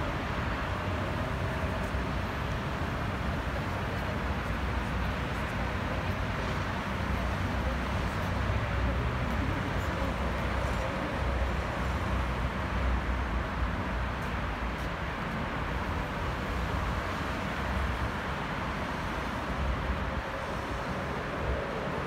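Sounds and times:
traffic rumble and hiss: 0:00.0 - 0:22.0
distant electric train: 0:17.6 - 0:22.0.

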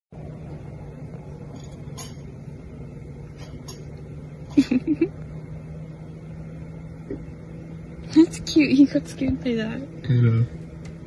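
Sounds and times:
steady low hum: 0:00.1 - 0:11.0.

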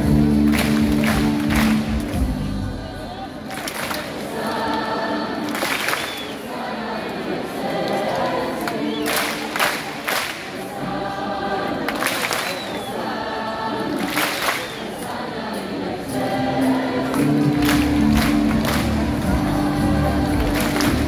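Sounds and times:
music from stage: 0:00.0 - 0:09.6, 0:12.8 - 0:21.0
crowd singing: 0:00.0 - 0:21.0
hand claps: 0:00.2 - 0:02.3, 0:03.5 - 0:04.8, 0:05.4 - 0:06.4, 0:07.8 - 0:10.6, 0:11.8 - 0:12.9, 0:13.9 - 0:15.1, 0:17.1 - 0:19.6, 0:20.3 - 0:21.0.

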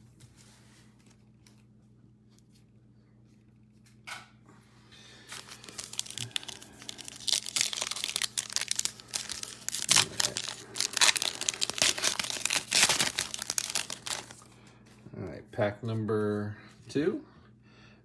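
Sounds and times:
foil wrapper tearing and crinkling: 0:05.3 - 0:14.5.

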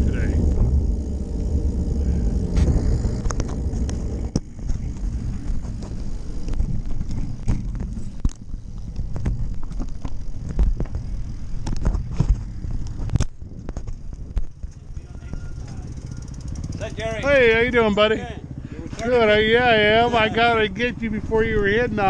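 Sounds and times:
wind rumble on microphone: 0:00.0 - 0:17.0
bike clicks and rattles: 0:00.0 - 0:17.3
electric bike rolling: 0:00.0 - 0:22.0.

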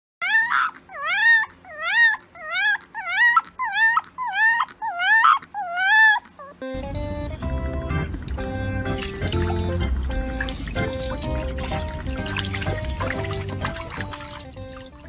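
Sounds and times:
puppy howling: 0:00.2 - 0:06.6.

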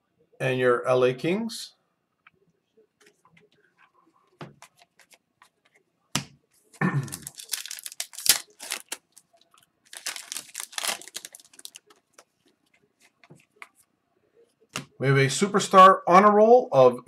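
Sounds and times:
foil wrapper tearing and crinkling: 0:07.1 - 0:12.0.

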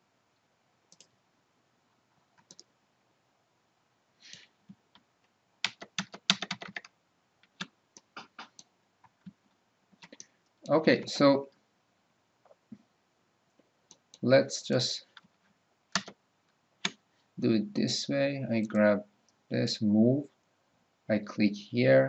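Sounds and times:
mouse and keyboard clicks: 0:02.4 - 0:02.7.

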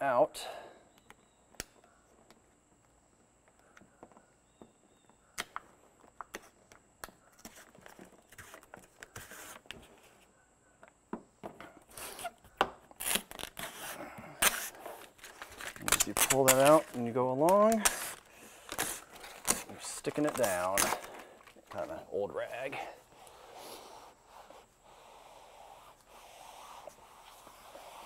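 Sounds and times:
handling noises: 0:01.0 - 0:24.8
tape liner ripping: 0:11.9 - 0:21.2.

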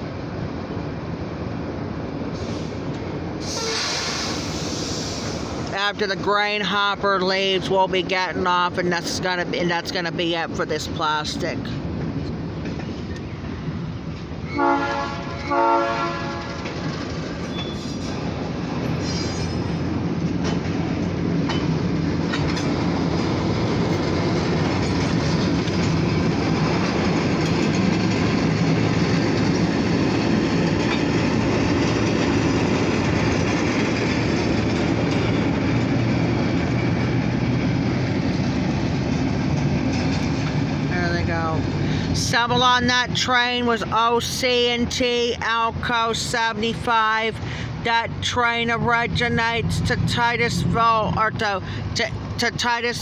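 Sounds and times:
locomotive horn blasts: 0:03.5 - 0:04.2, 0:14.5 - 0:16.8
train wheels clattering on rails: 0:11.6 - 0:14.4, 0:16.2 - 0:40.9.

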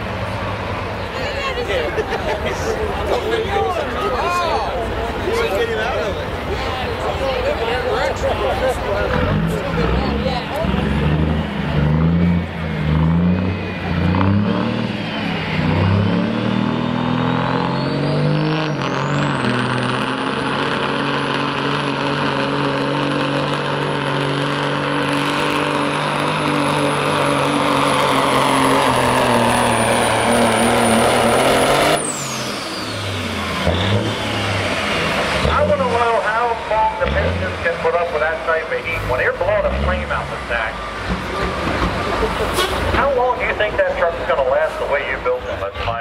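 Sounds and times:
diesel truck engine under load: 0:00.0 - 0:46.0
turbocharger whistle: 0:11.4 - 0:20.5, 0:25.2 - 0:34.9.

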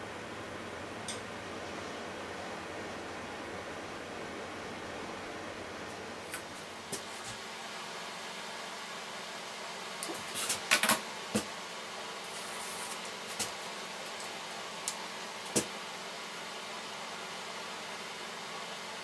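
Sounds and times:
steady hiss: 0:00.0 - 0:08.4.

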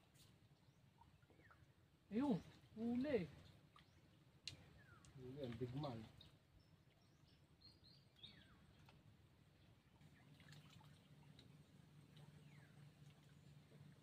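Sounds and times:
faint low hum: 0:00.2 - 0:14.0.

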